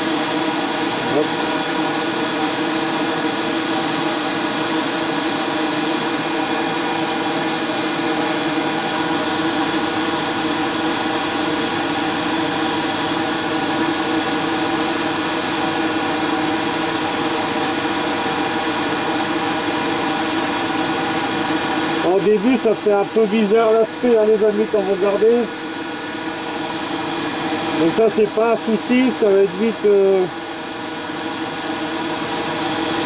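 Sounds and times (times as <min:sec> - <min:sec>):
airbrush air hiss: 0:00.0 - 0:01.2, 0:02.2 - 0:06.0, 0:07.3 - 0:23.4, 0:27.1 - 0:33.0.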